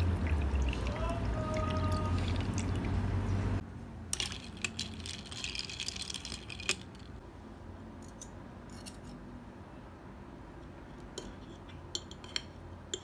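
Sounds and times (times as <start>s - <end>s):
ice cubes crackling and clinking: 4.2s - 7.1s.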